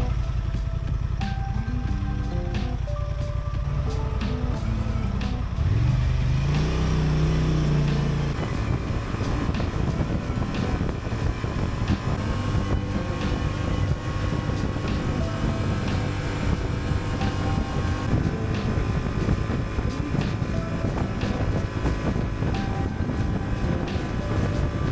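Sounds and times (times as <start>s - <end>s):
motorcycle engine accelerating: 0.0s - 24.9s
wind rush: 5.4s - 24.9s.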